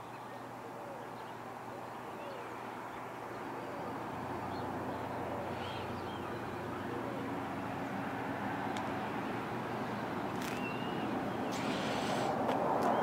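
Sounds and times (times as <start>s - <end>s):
low rumble of vehicles: 0.0s - 13.0s
bird chirps: 10.3s - 12.2s.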